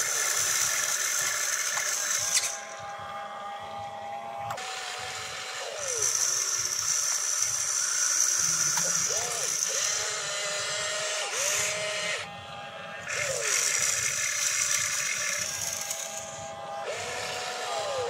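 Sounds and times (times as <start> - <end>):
electric motors whining: 0.0 - 18.0.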